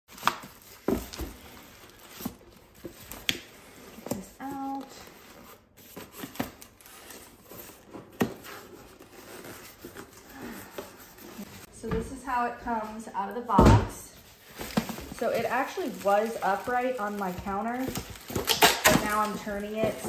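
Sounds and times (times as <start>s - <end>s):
rustling cardboard and foam: 0.1s - 20.0s.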